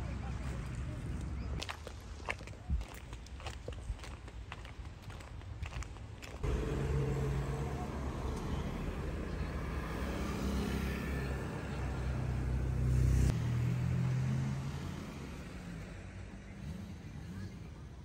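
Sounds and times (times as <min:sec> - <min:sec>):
vehicle engine humming: 0:06.4 - 0:18.0.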